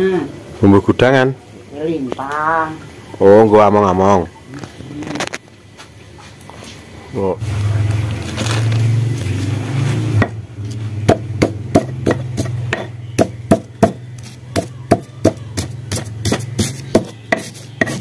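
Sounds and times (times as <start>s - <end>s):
stone pestle pounding in mortar: 11.0s - 18.0s.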